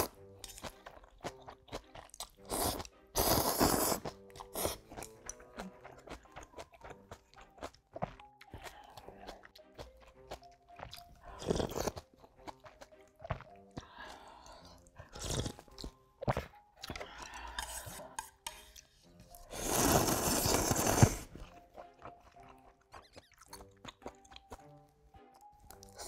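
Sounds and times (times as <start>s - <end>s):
slurping noodles: 0.0s - 7.1s, 11.0s - 12.7s, 13.3s - 21.6s
person chewing: 0.0s - 26.0s.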